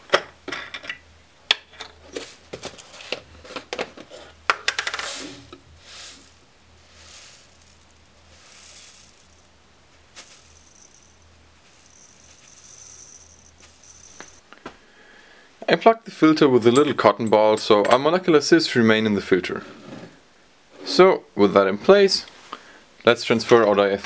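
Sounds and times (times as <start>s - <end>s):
beads clinking into glass bottle: 5.0s - 14.4s.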